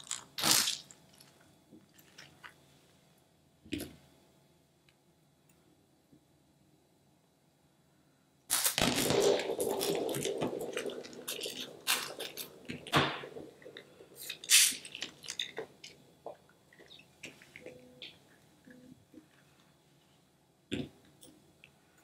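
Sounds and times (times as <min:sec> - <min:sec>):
wet squishing and crackling: 0:00.0 - 0:02.6, 0:08.5 - 0:18.2.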